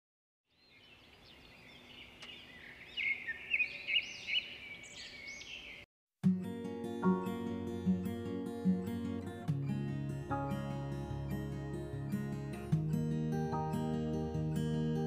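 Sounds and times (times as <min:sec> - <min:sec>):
birds chirping and whistling: 0:00.5 - 0:05.8
acoustic guitar music: 0:06.2 - 0:15.0.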